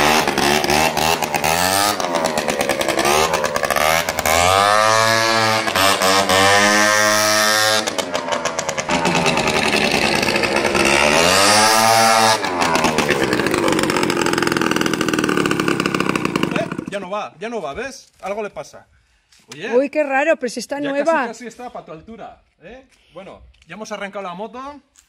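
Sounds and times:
small motorcycle engine revving: 0.0s - 17.0s.

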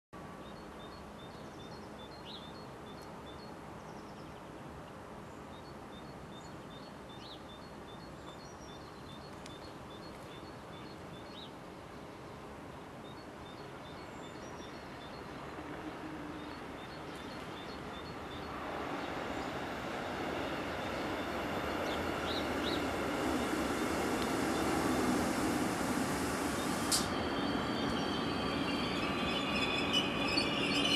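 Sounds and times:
approaching electric train: 13.4s - 30.9s.

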